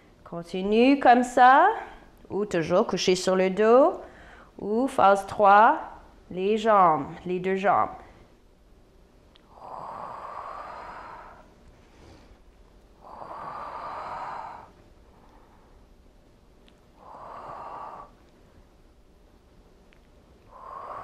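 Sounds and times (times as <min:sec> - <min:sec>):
woman breathing hard: 0:04.0 - 0:04.6, 0:09.5 - 0:12.4, 0:13.0 - 0:15.9, 0:16.9 - 0:18.3, 0:20.4 - 0:21.0.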